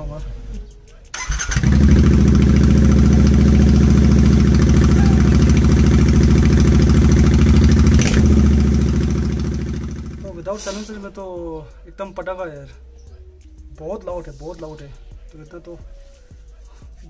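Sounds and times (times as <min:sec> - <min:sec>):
loud motorcycle engine idling: 0:01.5 - 0:10.5.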